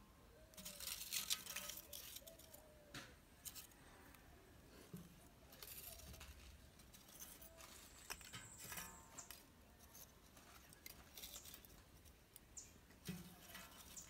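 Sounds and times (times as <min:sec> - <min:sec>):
charcoal clinking: 0:00.5 - 0:02.7, 0:05.2 - 0:14.0.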